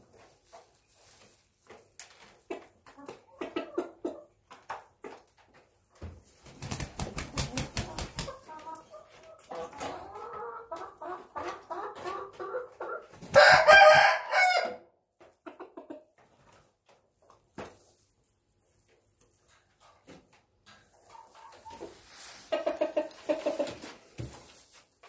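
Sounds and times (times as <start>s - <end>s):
chickens clucking: 0.1s - 14.0s, 15.1s - 24.8s
rooster crowing: 13.4s - 14.8s.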